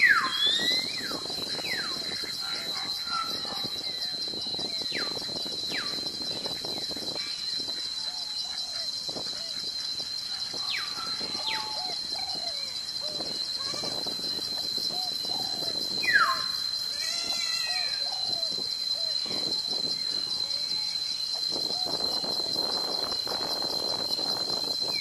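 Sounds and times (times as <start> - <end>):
downward whistled calls: 0.0 - 6.0, 10.4 - 14.0, 14.8 - 21.0.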